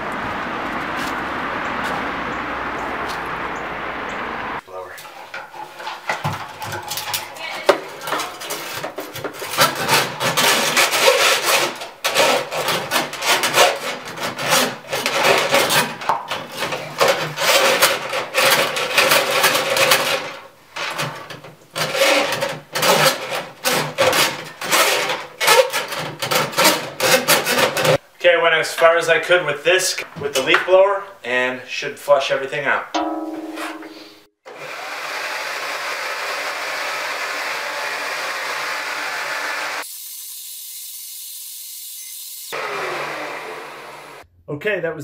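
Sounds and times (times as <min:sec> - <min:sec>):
brush scraping inside vent pipe: 0:04.9 - 0:28.0.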